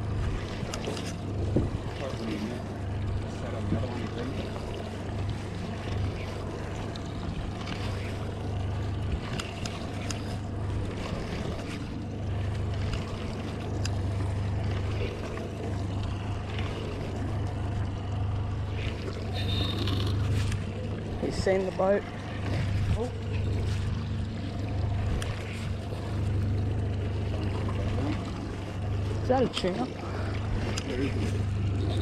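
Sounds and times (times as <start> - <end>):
boat engine humming: 0.0 - 32.0
water wash: 0.0 - 32.0
faint ticks: 13.8 - 14.0.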